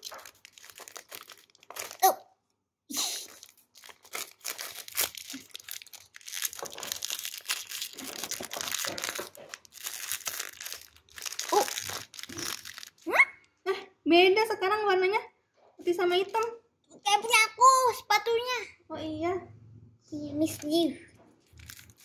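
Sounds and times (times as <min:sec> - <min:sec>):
foil wrapper crinkling: 0:00.0 - 0:02.2, 0:03.0 - 0:13.1, 0:21.4 - 0:22.0.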